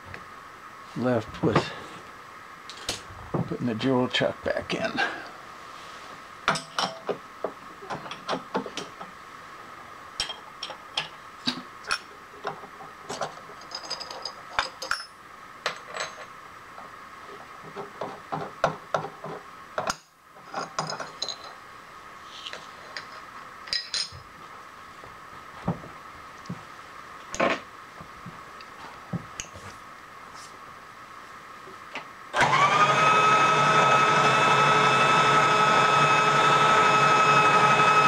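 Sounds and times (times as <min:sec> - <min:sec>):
metal tools clinking: 0:13.6 - 0:16.4, 0:20.5 - 0:21.6, 0:23.7 - 0:24.2.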